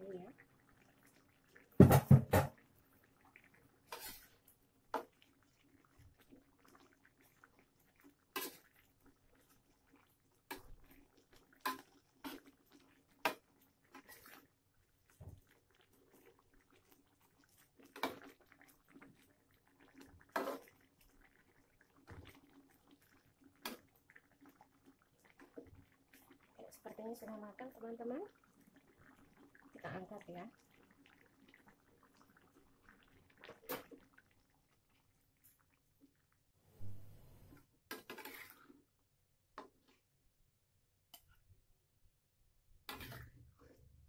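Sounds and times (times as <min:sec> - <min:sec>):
metal spatula scraping a wok: 0:03.9 - 0:04.3, 0:08.4 - 0:08.6, 0:20.4 - 0:20.6, 0:37.9 - 0:38.6.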